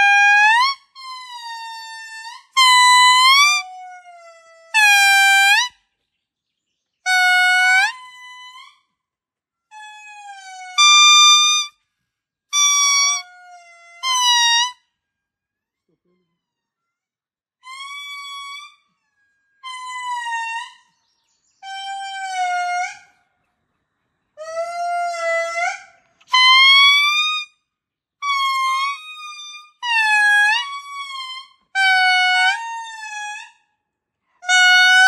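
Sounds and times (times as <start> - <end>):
lemur wailing calls: 24.4 - 27.4.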